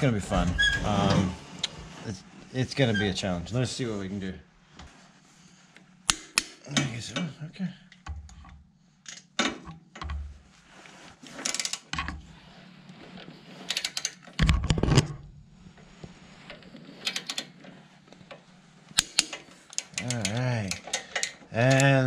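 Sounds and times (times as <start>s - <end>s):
ratchet clicks: 19.0s - 21.9s.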